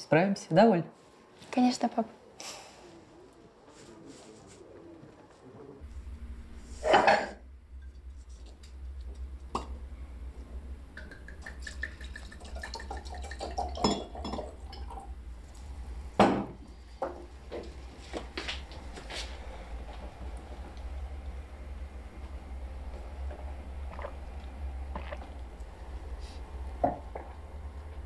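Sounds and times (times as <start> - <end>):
steady low hum: 0.0 - 28.0
dishes and glassware clinking: 6.8 - 7.4, 13.4 - 14.6.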